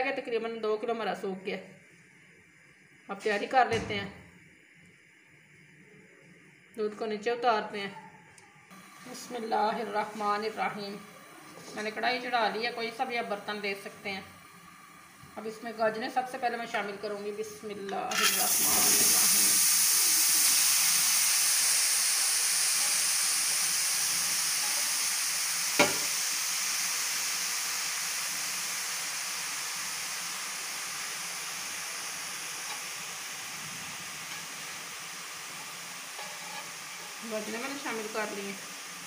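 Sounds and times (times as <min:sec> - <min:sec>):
carrots sizzling in a pan: 0:08.7 - 0:39.0
sharp knock: 0:25.8 - 0:26.1.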